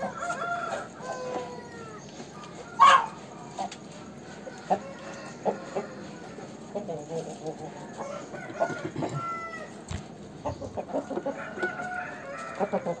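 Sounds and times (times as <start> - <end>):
chickens clucking: 0.0 - 13.0
high-pitched chicken call: 2.6 - 3.2, 8.0 - 9.8.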